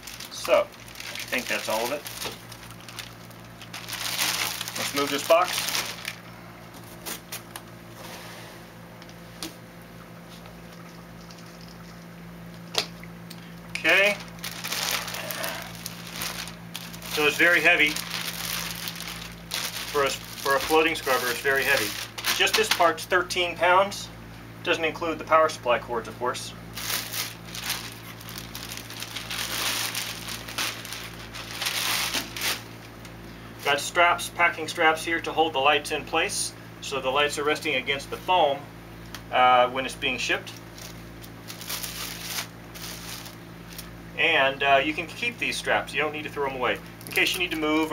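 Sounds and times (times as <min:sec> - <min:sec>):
plastic bag crinkling: 0:00.0 - 0:07.6, 0:13.7 - 0:23.0, 0:26.7 - 0:33.0, 0:40.5 - 0:44.0, 0:47.0 - 0:47.9
steady low hum: 0:00.0 - 0:47.9.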